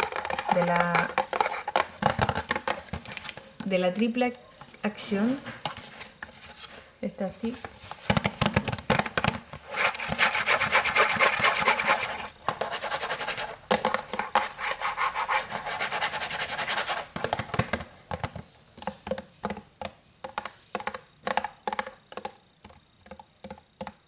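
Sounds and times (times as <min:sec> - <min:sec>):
fingernails scratching cardboard box: 0:09.7 - 0:13.5.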